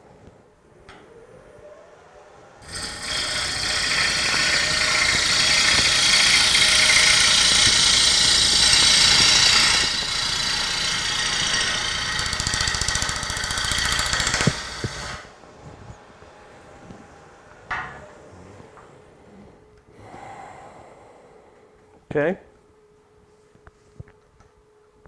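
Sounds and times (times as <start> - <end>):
lathe gouge shearing wood: 2.6 - 15.3.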